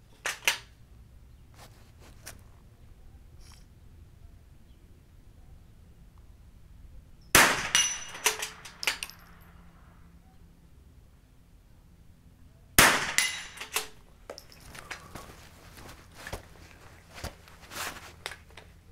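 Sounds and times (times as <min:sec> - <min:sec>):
rifle shots: 0:07.3 - 0:09.4, 0:12.8 - 0:14.0
metallic clicks and clanks: 0:07.7 - 0:09.5, 0:13.1 - 0:15.0.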